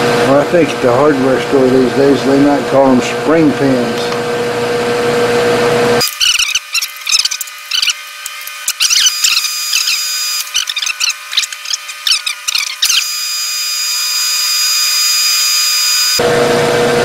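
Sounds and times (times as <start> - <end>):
drill cutting metal whine: 6.0 - 16.3.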